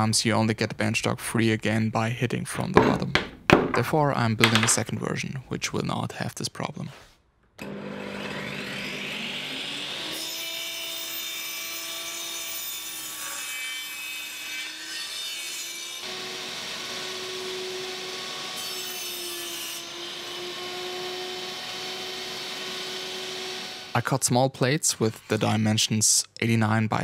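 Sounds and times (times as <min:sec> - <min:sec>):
table saw cutting wood: 0:07.6 - 0:25.8.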